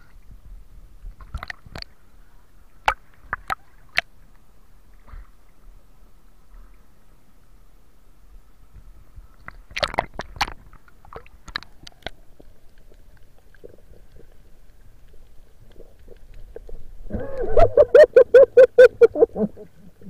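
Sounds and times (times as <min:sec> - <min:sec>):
splash and crackle underwater: 0:00.0 - 0:05.8, 0:08.6 - 0:20.0
faint underwater ticks: 0:08.3 - 0:17.5.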